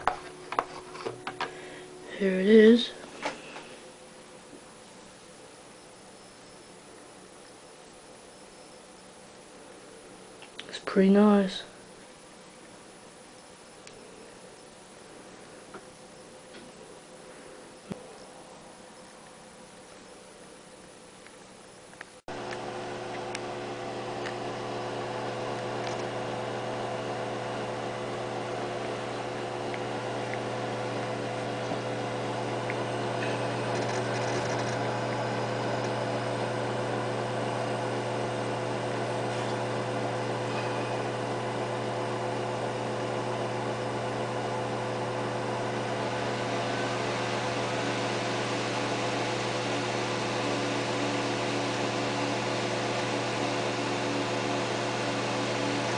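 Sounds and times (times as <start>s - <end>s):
computer fans humming: 0.0s - 55.9s.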